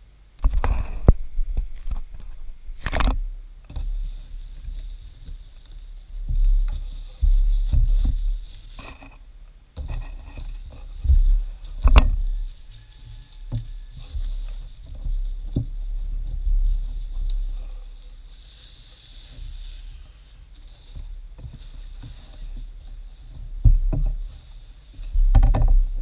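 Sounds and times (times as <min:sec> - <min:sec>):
foam packing wrap rustling: 0:10.0 - 0:25.3.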